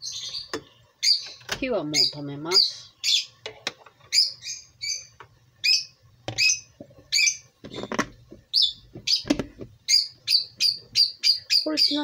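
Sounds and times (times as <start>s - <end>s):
small bird chirping: 0.0s - 3.4s, 4.1s - 12.0s
plastic lid knocking: 7.6s - 9.8s.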